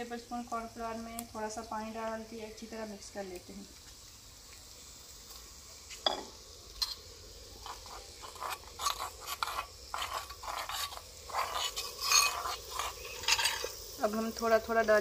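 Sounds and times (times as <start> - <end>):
metal spoon scraping clay bowl: 7.6 - 13.8.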